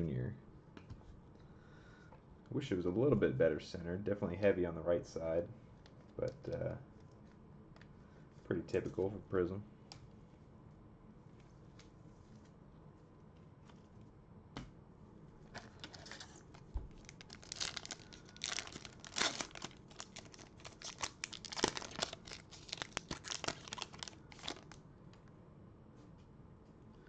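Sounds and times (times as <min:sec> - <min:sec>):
foil pack crinkling and tearing: 0:15.6 - 0:24.8.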